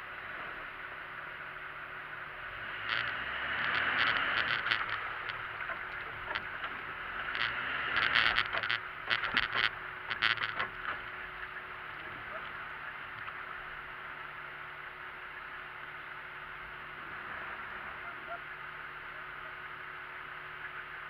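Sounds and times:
vehicle low running noise: 0.0s - 21.0s
tyres sloshing through wet snow: 2.4s - 14.1s.

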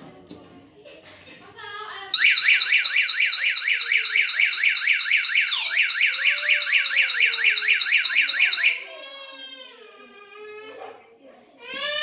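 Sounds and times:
warbling electronic alarm siren: 2.2s - 8.8s.

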